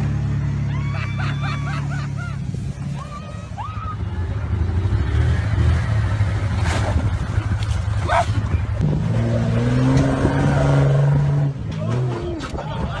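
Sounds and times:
off-road vehicle engine rumbling: 0.0 - 13.0.

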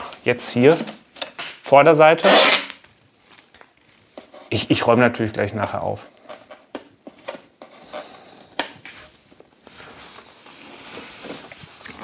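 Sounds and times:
packaging rustling: 2.6 - 3.8.

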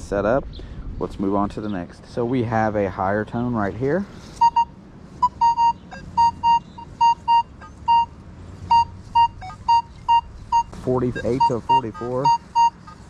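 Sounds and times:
metal detector short beeps: 4.4 - 13.0.

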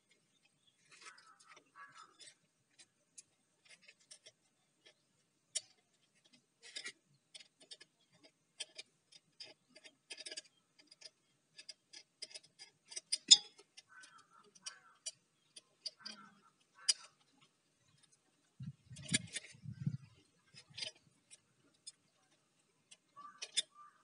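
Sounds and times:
light metallic clicks and clinks: 5.6 - 24.0.

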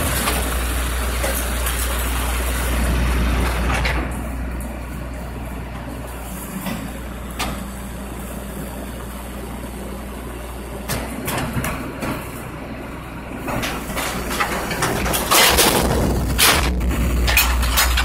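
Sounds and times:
garbage truck idling: 0.0 - 18.0
loud rattling: 13.5 - 18.0.

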